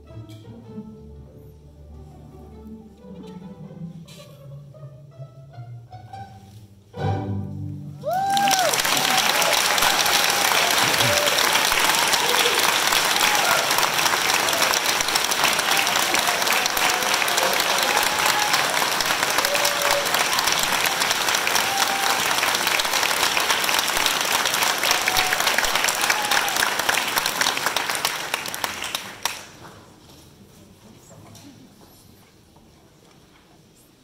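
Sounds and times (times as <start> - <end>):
audience applauding: 8.0 - 29.7.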